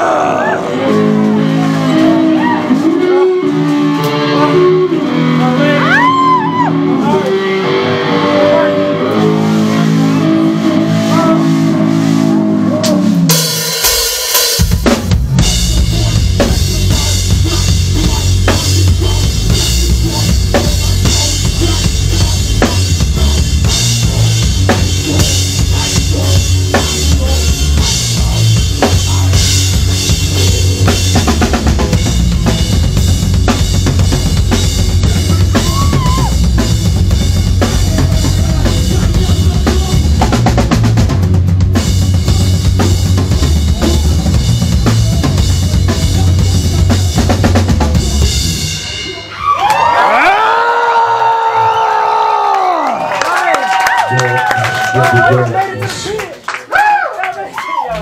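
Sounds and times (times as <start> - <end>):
live band playing loud: 0.0 - 51.9
pounding drum kit: 9.1 - 52.8.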